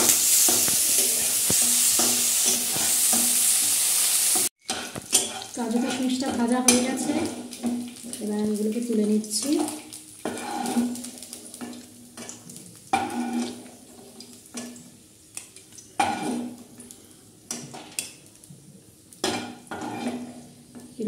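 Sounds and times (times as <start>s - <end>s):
spatula scraping and knocking pan: 0.0s - 8.1s, 10.2s - 13.8s, 16.0s - 16.6s, 19.2s - 20.5s.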